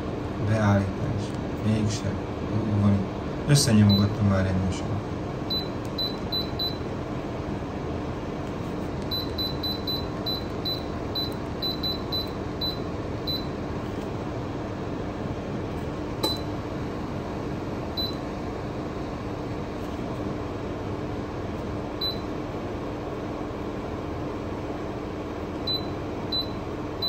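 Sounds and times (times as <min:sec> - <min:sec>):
heater fan humming: 0:00.0 - 0:27.0.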